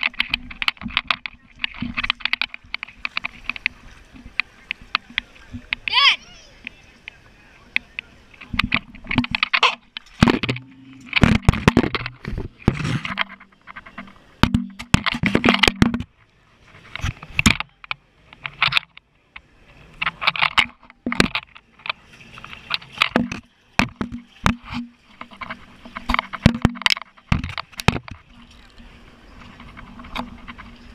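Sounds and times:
camera handling scraping: 8.4s - 17.7s.

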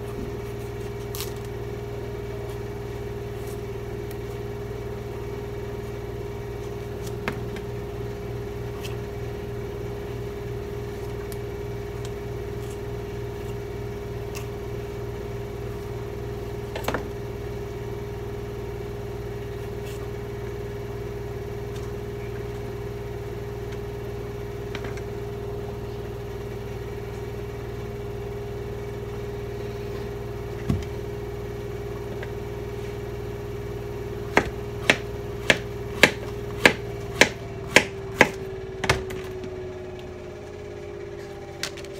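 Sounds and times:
appliance motor hum: 0.0s - 41.9s.

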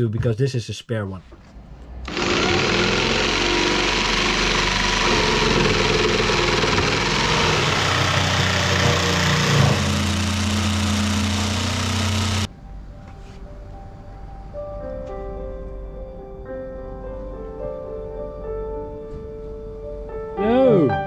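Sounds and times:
electric jigsaw cutting: 2.1s - 12.5s.

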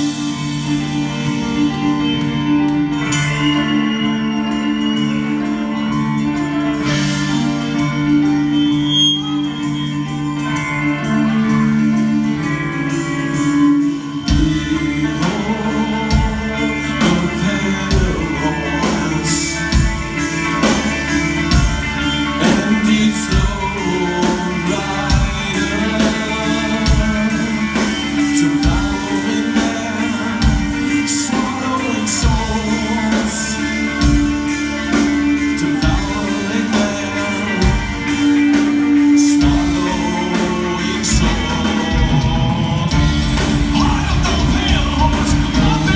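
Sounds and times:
live rock band playing: 0.0s - 45.9s
person singing: 0.0s - 45.9s
steady drum beat: 9.9s - 45.9s.

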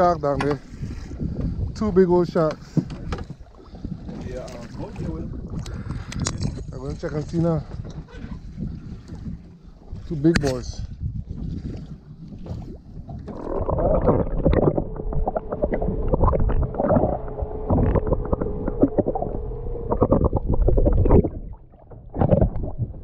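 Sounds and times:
low rumble: 10.8s - 23.0s
underwater water rushing: 11.8s - 23.0s
steady hum: 13.4s - 22.3s.

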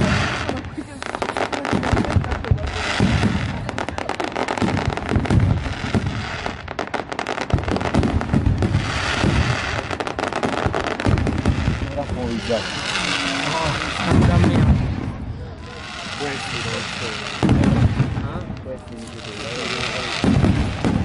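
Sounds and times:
fireworks bursting: 0.0s - 21.0s
fireworks crackling: 0.0s - 21.0s.

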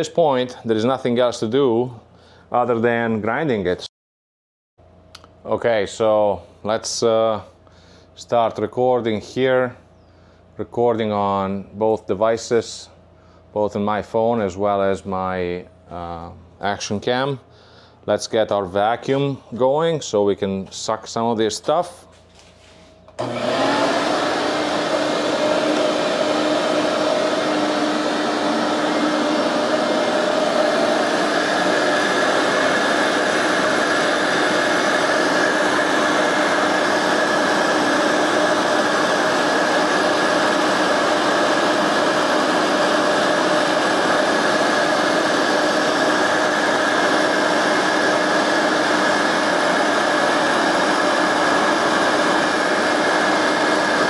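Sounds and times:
shop vacuum running: 0.0s - 3.8s, 5.2s - 54.0s
high steady whine: 22.5s - 54.0s.

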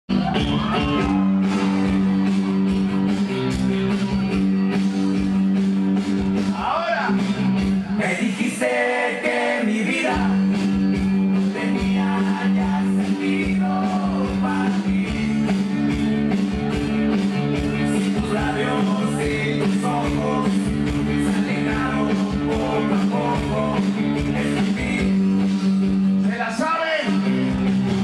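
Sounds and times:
guitar: 0.0s - 28.0s
person singing: 7.9s - 10.5s, 11.4s - 15.7s, 17.8s - 25.2s.

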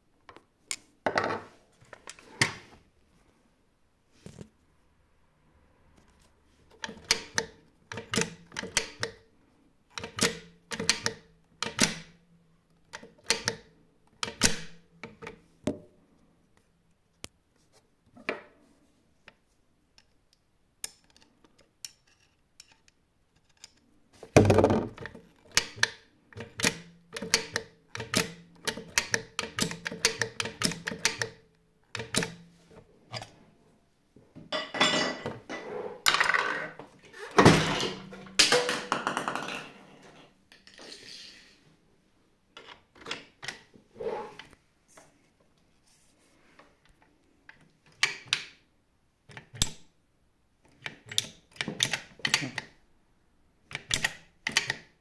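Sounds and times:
sewing machine lever clicking: 6.8s - 9.2s, 10.0s - 12.1s, 12.9s - 13.6s, 14.2s - 15.2s, 24.9s - 32.4s.

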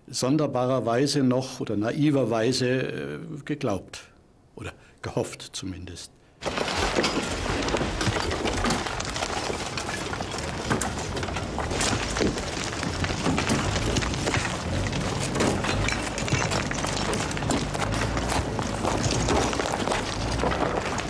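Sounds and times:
bricks and rubble being shovelled: 6.4s - 21.0s.

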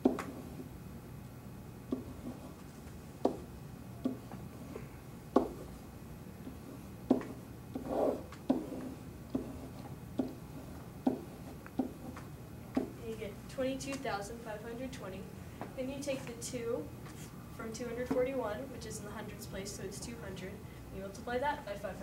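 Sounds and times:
pen tapping on whiteboard: 0.0s - 0.4s, 1.9s - 2.6s, 3.2s - 4.4s, 5.3s - 5.6s, 6.4s - 10.4s, 11.0s - 12.9s.

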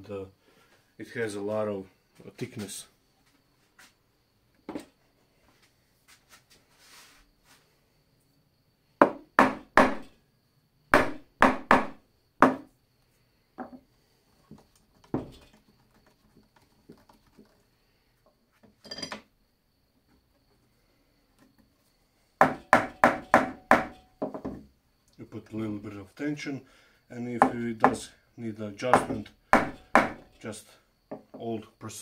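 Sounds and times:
small hammer tapping wood: 29.0s - 30.2s.

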